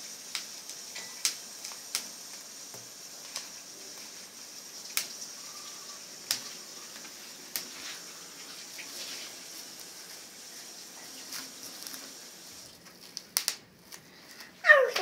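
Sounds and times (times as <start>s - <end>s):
plastic sheet crinkling: 3.2s - 15.0s
bubble wrap popping: 11.2s - 15.0s.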